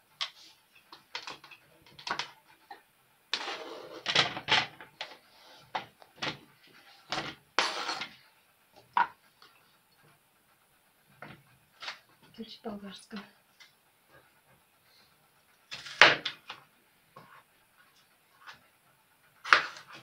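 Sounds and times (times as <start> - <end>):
food scraped off board: 7.6 - 8.2.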